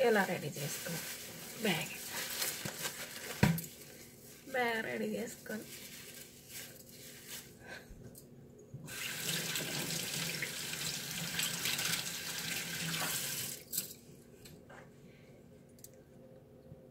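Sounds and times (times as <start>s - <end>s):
kitchen tap running: 8.9s - 13.7s.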